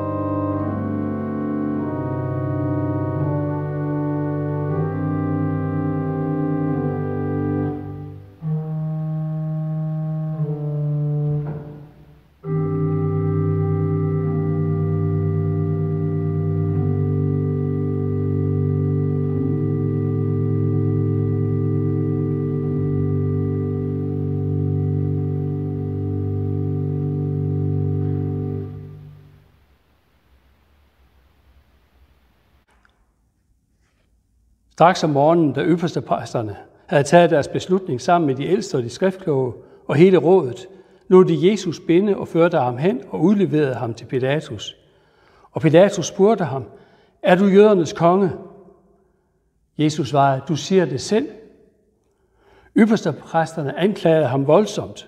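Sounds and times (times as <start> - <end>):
pipe organ playing chords: 0.0 - 29.8.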